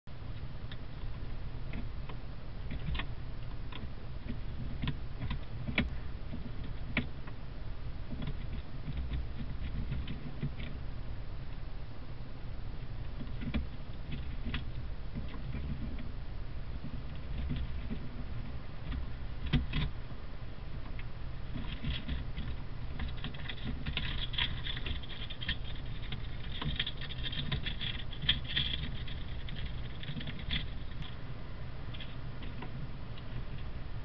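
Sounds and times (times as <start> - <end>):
low steady hum: 0.0 - 34.0
vole scratching paper: 21.5 - 31.2.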